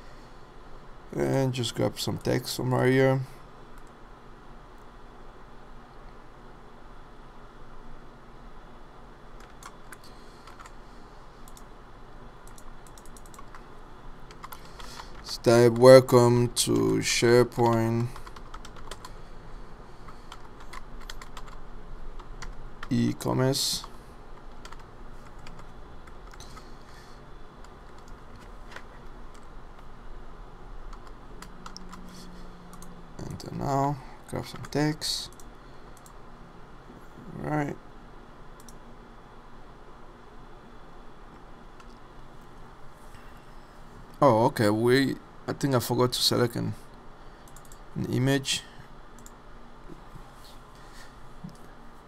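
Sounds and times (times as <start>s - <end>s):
steady low hum: 0.0s - 52.0s
keyboard and mouse clicks: 9.4s - 10.8s, 12.4s - 13.6s, 14.3s - 15.9s, 30.9s - 33.0s, 47.5s - 47.8s
keyboard typing: 9.4s - 10.8s, 12.4s - 13.7s, 14.3s - 16.0s, 17.6s - 19.2s, 20.0s - 21.6s, 22.2s - 23.1s, 23.7s - 26.9s, 27.6s - 29.9s, 30.9s - 33.4s, 47.5s - 47.8s.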